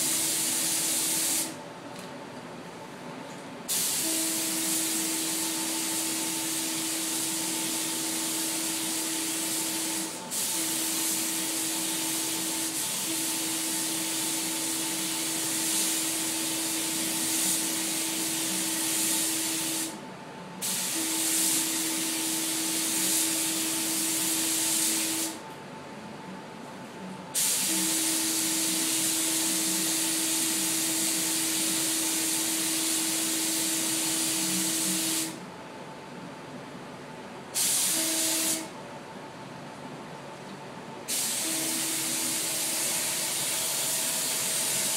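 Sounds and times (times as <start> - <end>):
paint spray gun hissing: 0.0 - 1.6, 3.7 - 20.0, 20.6 - 25.4, 27.4 - 35.4, 37.6 - 38.7, 41.1 - 44.9.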